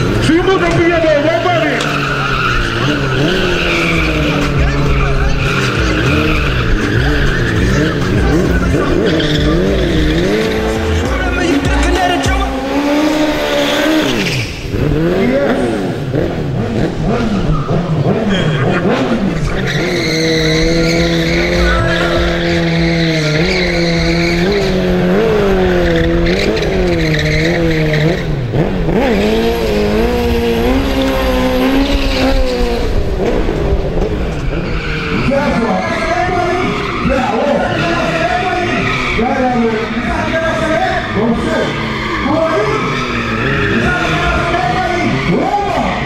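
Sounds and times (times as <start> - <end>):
tyre squealing: 0.0 - 15.7, 16.6 - 32.9, 34.2 - 46.0
motorcycle engine revving: 0.0 - 46.0.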